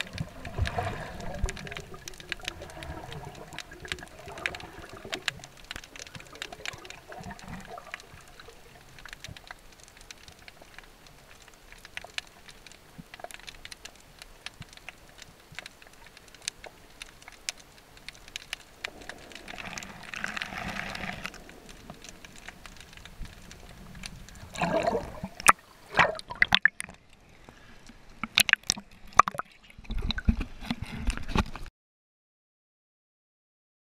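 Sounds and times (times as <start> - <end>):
liquid dripping and splashing: 0.0 - 30.5
low watery rumble: 0.0 - 31.7
rushing water: 0.0 - 31.7.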